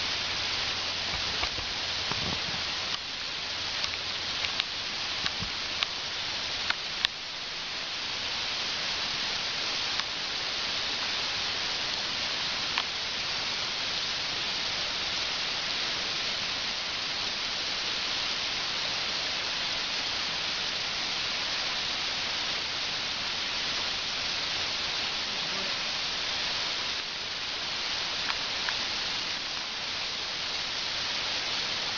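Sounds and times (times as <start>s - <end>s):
waterfall hissing: 0.0s - 31.9s
faint clicks: 3.8s - 6.0s.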